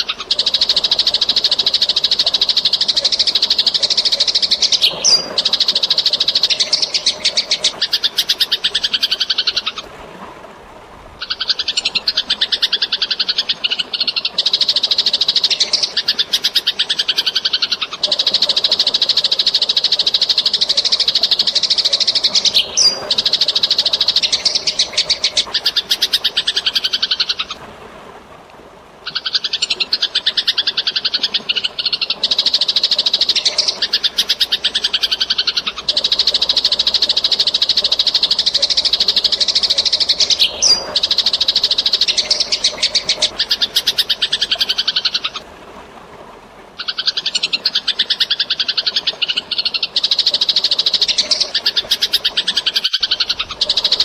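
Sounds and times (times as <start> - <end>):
sparrows chattering: 0.0 - 9.6, 20.6 - 27.4, 31.5 - 45.4
faint running water: 0.0 - 54.0.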